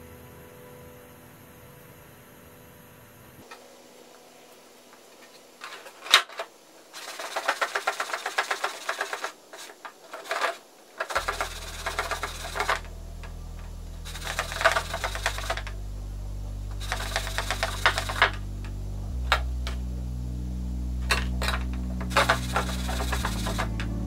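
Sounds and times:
rapid mechanical clicking: 5.7 - 13.4, 14.0 - 15.8, 16.7 - 18.4, 21.1 - 23.9.

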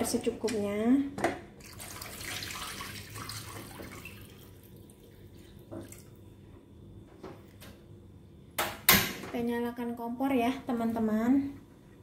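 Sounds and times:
water pouring and splashing into pot: 1.6 - 6.2.

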